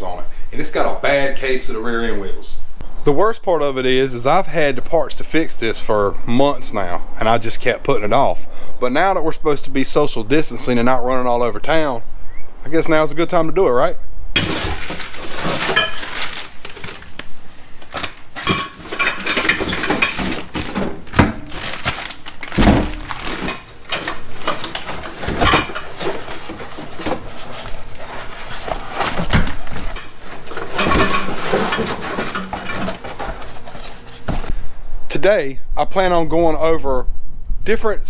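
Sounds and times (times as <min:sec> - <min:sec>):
plastic bag rustling: 0:14.4 - 0:34.5
plastic containers clattering: 0:14.4 - 0:34.5.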